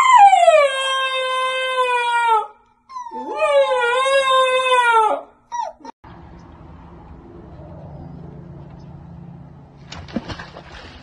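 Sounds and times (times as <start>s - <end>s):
puppy howling: 0.0s - 6.0s.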